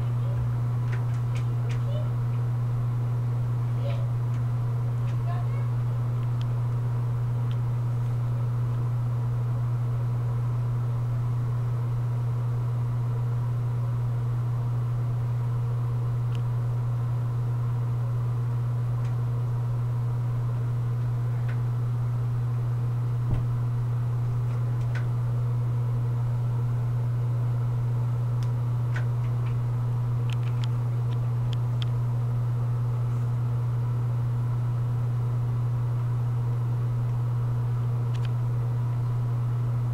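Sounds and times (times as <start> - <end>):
steady low hum: 0.0 - 39.9
soft thump: 23.3 - 23.5.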